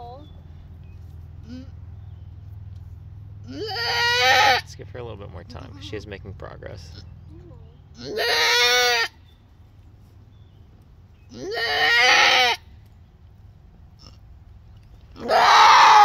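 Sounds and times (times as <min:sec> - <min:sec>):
goat bleating loudly: 0:03.5 - 0:04.8, 0:08.0 - 0:09.2, 0:11.3 - 0:12.6, 0:15.2 - 0:16.0.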